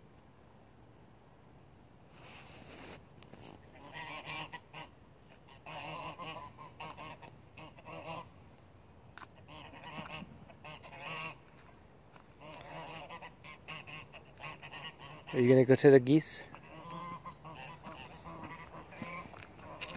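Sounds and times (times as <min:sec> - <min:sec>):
geese honking: 0:03.8 - 0:08.3, 0:09.3 - 0:15.6, 0:16.4 - 0:19.9.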